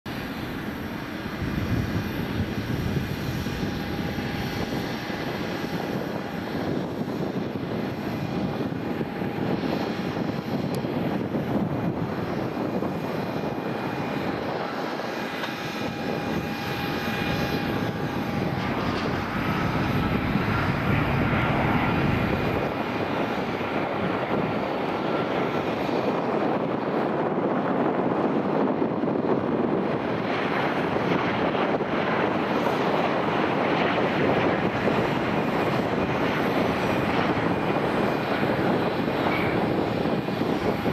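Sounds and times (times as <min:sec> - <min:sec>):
high whining fan tones: 0:00.1 - 0:40.9
jet engine rumble: 0:00.1 - 0:40.9.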